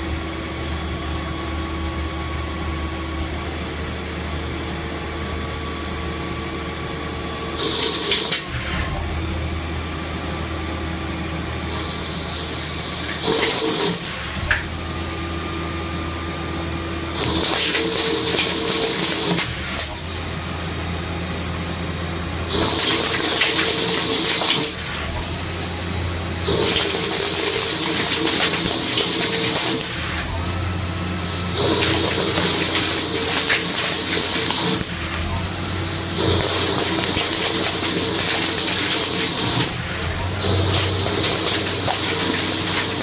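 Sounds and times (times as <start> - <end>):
lathe low hum: 0.0 - 43.0
lathe cutting whine and hiss: 7.5 - 8.9, 11.6 - 16.0, 22.5 - 43.0.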